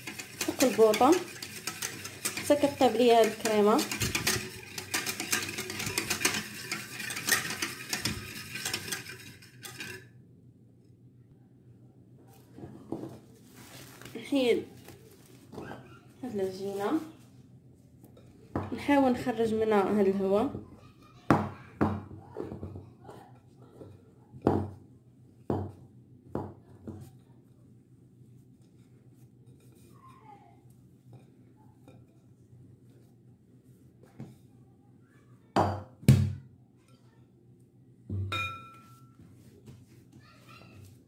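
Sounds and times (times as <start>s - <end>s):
whisk clinking against metal pan: 0.0s - 10.1s, 38.1s - 39.2s.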